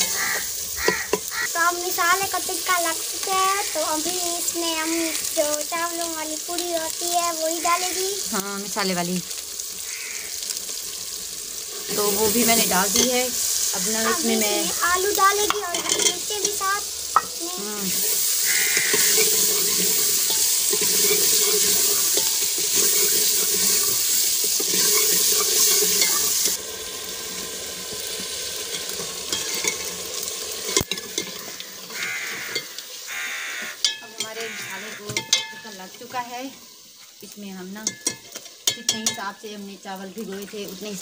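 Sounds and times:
potatoes sizzling in pot: 0.0s - 41.0s
ladle scraping pot: 18.7s - 24.0s.

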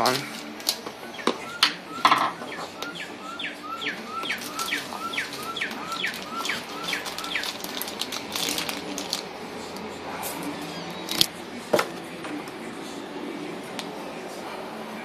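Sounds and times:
plastic bag crinkling: 4.3s - 9.6s.

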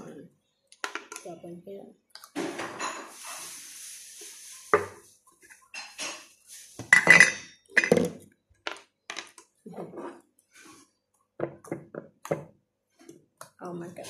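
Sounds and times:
bottles clinking on wooden table: 5.8s - 9.4s.

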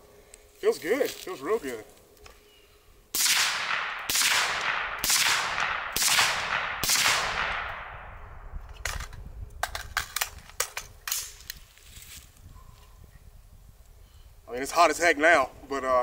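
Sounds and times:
suppressed rifle shots echoing: 3.1s - 9.0s.

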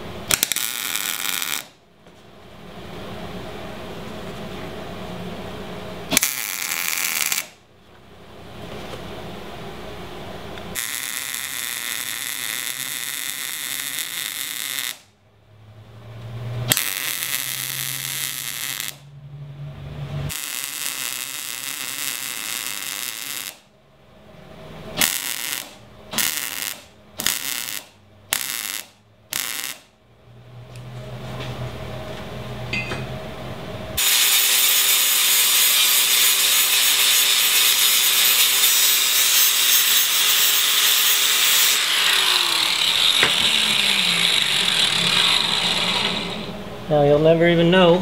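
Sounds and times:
welder arc crackling and hissing: 0.0s - 1.8s, 6.1s - 7.6s, 10.6s - 15.1s, 16.7s - 19.1s, 20.2s - 23.7s, 25.0s - 29.9s, 34.0s - 48.0s.

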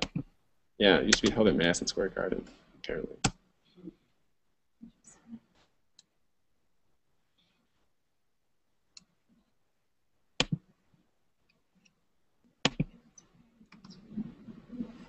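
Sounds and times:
computer mouse clicks: 10.4s - 10.6s, 12.6s - 13.0s.

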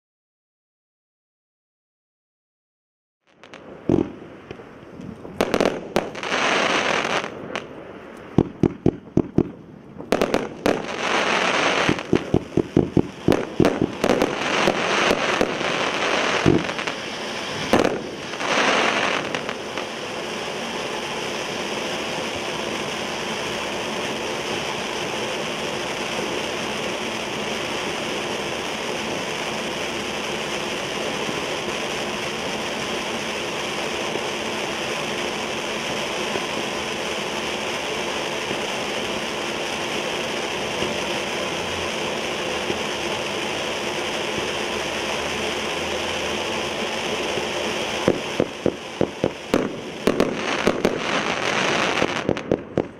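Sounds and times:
sharp crackling pops: 3.3s - 20.6s, 46.8s - 52.9s
firework fountain hissing: 3.3s - 52.9s.

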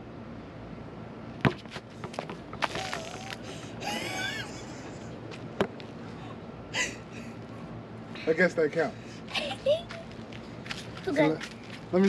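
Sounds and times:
basketball slapping concrete: 1.4s - 3.4s.

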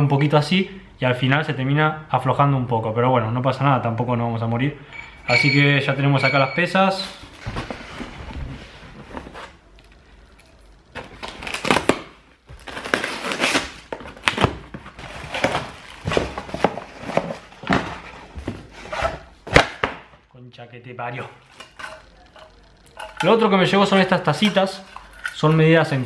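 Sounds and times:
crumpled paper rustling: 7.0s - 19.2s
knife cutting packing tape: 11.0s - 14.6s.

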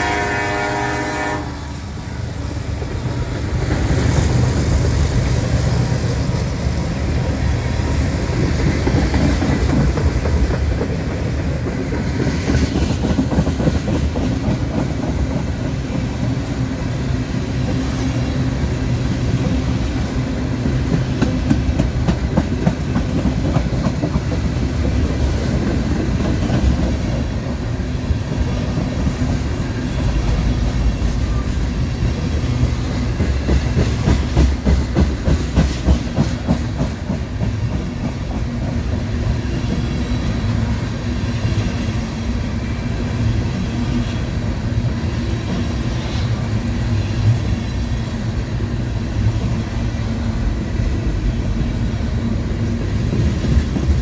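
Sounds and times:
diesel locomotive passing: 0.0s - 54.0s
train wheels clacking over rail joints: 7.1s - 16.6s, 19.2s - 27.5s, 28.4s - 40.7s, 52.8s - 54.0s.

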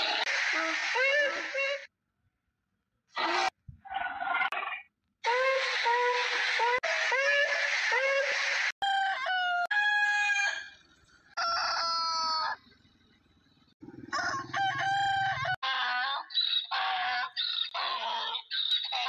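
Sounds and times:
rooster crowing: 8.8s - 12.6s, 13.8s - 16.0s.

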